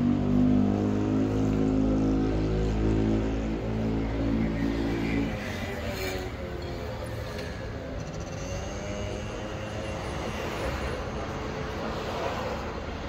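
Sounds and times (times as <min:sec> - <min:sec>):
vehicle rumble with hiss: 0:01.1 - 0:13.0.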